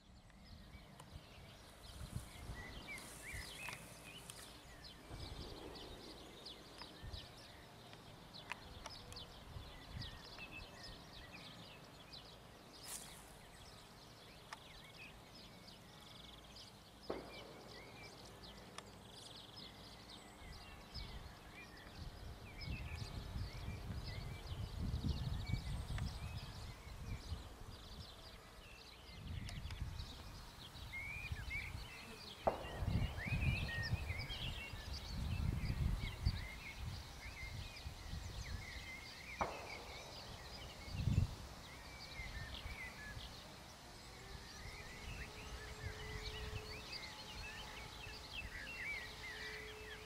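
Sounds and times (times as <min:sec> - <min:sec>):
birds chirping and singing: 0:00.0 - 0:50.0
wind rumble on microphone: 0:00.1 - 0:11.8, 0:20.2 - 0:49.4.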